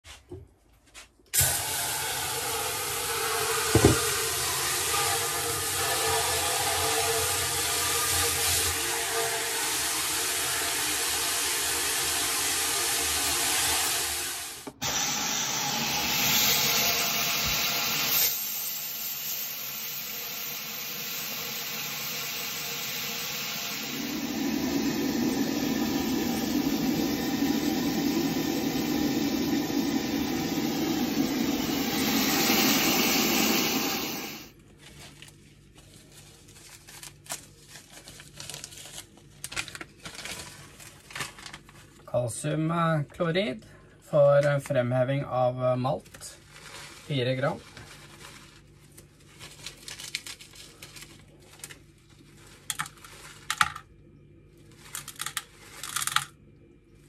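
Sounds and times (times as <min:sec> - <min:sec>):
water running into kettle: 0:01.4 - 0:34.5.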